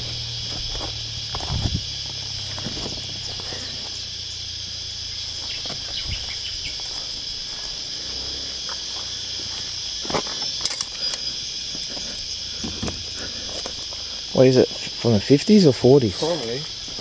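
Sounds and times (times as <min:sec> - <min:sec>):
high-pitched insect chorus: 0:00.0 - 0:17.0.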